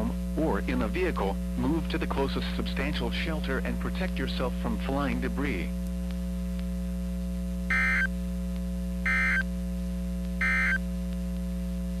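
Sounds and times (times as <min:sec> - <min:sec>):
steady electrical hum: 0:00.0 - 0:12.0
screechy digital data tones: 0:07.7 - 0:08.1, 0:09.1 - 0:09.4, 0:10.4 - 0:10.8.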